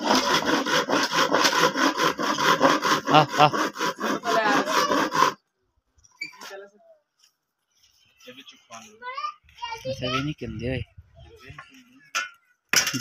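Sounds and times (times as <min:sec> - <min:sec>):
hand saw cutting wood: 0:00.0 - 0:05.4.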